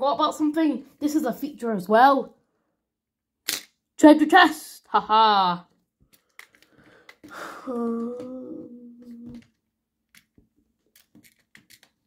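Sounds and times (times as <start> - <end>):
plastic bricks clicking: 6.1 - 7.3, 10.1 - 12.0
boy humming: 7.3 - 9.5.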